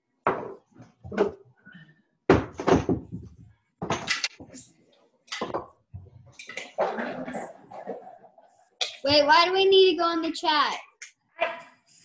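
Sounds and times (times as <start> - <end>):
cupboard doors and kitchenware banging: 0.2 - 1.5, 2.3 - 4.6, 5.3 - 8.3.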